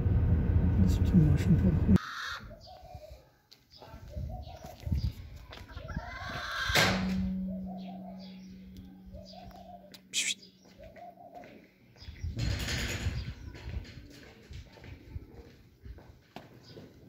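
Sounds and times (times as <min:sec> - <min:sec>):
steady low hum: 0:00.0 - 0:02.0, 0:06.9 - 0:10.2
pigeons cooing: 0:02.0 - 0:03.2, 0:05.8 - 0:11.7
brief high chirp: 0:09.2 - 0:10.5.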